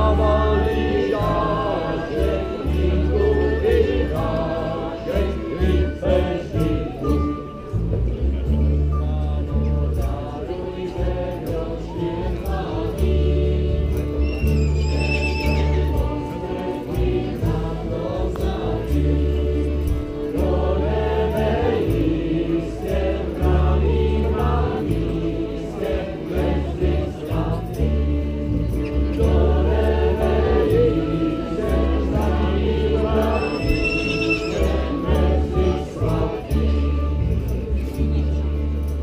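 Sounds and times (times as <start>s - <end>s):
group singing a carol: 0.0s - 39.0s
low bass line: 0.0s - 39.0s.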